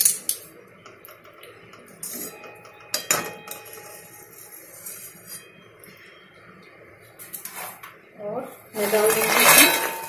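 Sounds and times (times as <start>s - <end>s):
metal skimmer scraping a pan: 8.8s - 10.0s.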